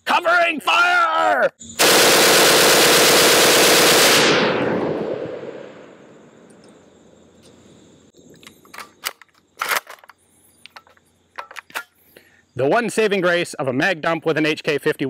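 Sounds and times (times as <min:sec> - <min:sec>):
automatic gunfire burst: 0:01.8 - 0:05.2
gunfire echo: 0:01.8 - 0:06.1
metallic gun handling clicks: 0:08.4 - 0:12.0.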